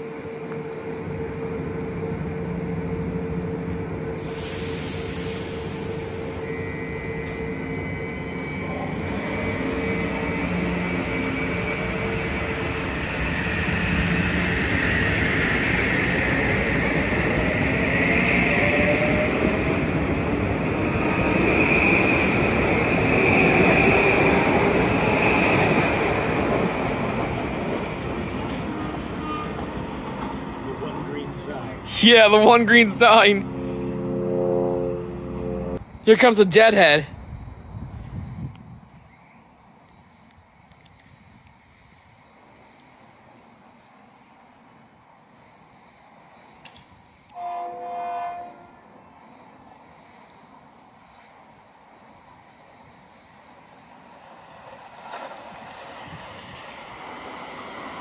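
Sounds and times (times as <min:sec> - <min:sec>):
train wheel noise: 0:00.0 - 0:36.6, 0:49.1 - 0:58.0
train hum: 0:00.0 - 0:58.0
air hiss: 0:04.1 - 0:07.4
high wheel squeal: 0:04.2 - 0:15.8, 0:17.5 - 0:25.9, 0:28.4 - 0:33.9.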